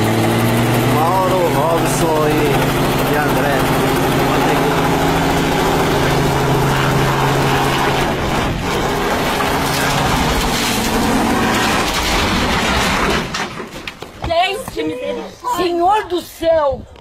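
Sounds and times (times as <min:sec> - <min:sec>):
helicopter engine and rotor: 0:00.0 - 0:11.9.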